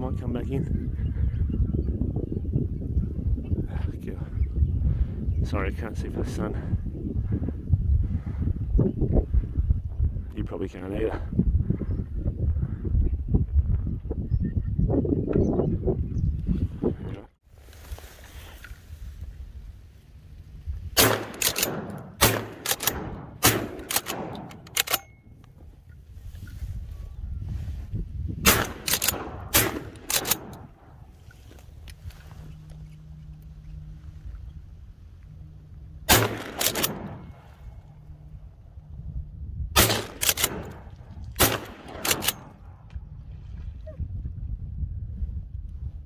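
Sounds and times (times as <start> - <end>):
shotgun blasts echoing: 21.0 - 25.2, 28.4 - 31.0, 36.1 - 37.7, 39.8 - 42.7.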